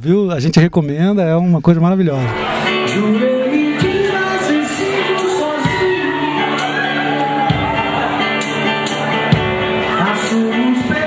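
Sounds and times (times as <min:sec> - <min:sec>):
guitar: 0:02.2 - 0:11.0
man singing into microphone: 0:02.8 - 0:06.8, 0:09.9 - 0:11.0.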